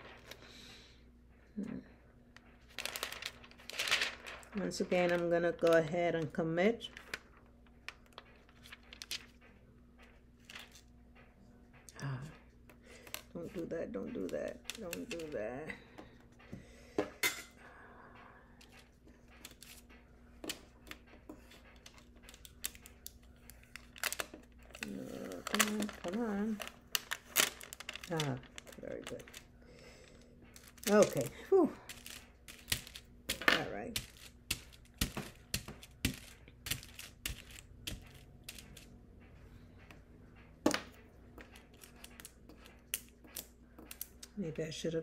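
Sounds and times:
faint steady hum: 0.0s - 45.0s
small clicks and rustles: 2.3s - 12.4s, 18.6s - 33.4s, 34.0s - 40.0s.

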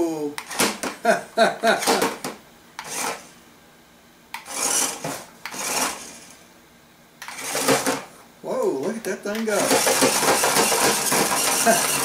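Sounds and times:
man chuckling: 0.9s - 2.2s, 11.5s - 12.0s
toy car scraping and clattering: 2.8s - 3.3s, 4.4s - 6.3s, 7.2s - 8.1s, 9.6s - 12.0s.

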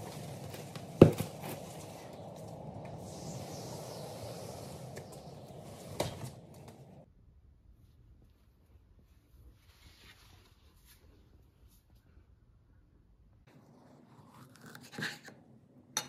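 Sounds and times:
low rustle: 0.0s - 7.0s.

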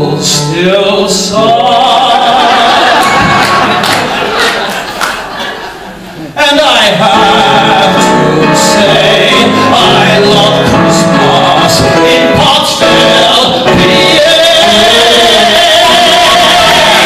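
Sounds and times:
man singing into microphone: 0.0s - 3.4s, 6.4s - 17.0s
instrumental accompaniment: 7.0s - 17.0s.

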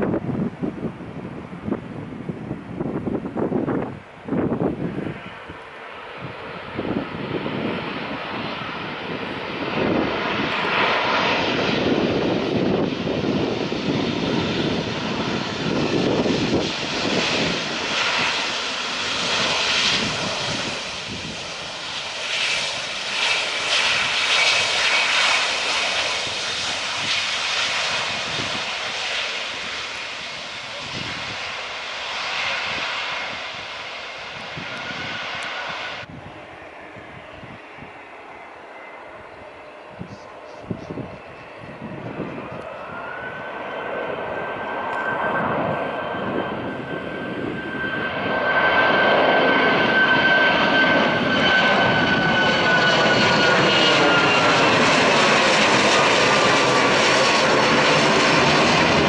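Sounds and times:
jet engines landing: 0.0s - 59.0s.

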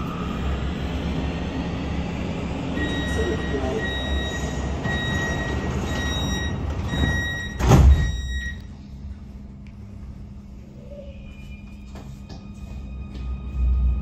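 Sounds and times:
train door warning beeps: 2.8s - 8.7s
sliding doors shutting with thud: 4.7s - 8.2s.

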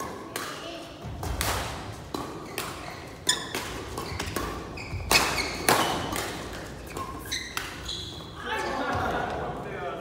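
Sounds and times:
racket striking shuttlecock: 0.3s - 7.9s
shoes squeaking on court floor: 2.0s - 9.0s.

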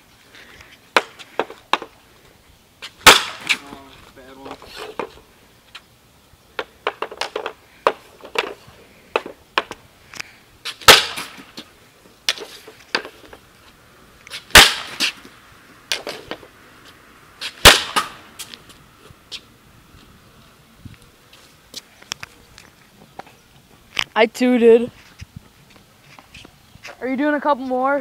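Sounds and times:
hockey stick cracking puck: 3.0s - 3.6s, 10.8s - 11.6s, 14.5s - 15.2s, 17.4s - 18.5s.

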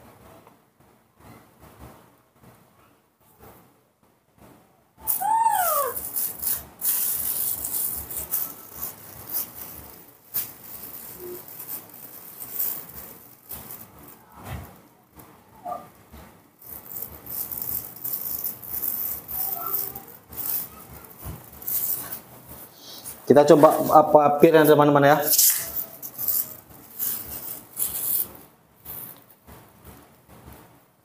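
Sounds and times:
baby monkey calling: 5.0s - 7.4s
plastic bag crinkling: 5.1s - 14.9s, 16.6s - 29.4s.

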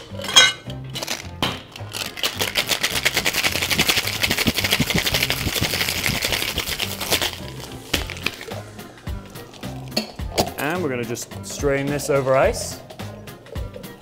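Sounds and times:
ice rattling in shaker: 1.0s - 8.5s
metal shaker tins knocking: 2.0s - 7.4s.

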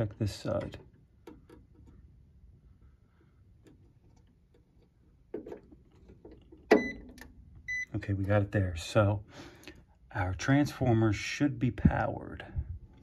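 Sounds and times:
short high-pitched meter beep: 6.7s - 7.0s, 7.7s - 7.9s.

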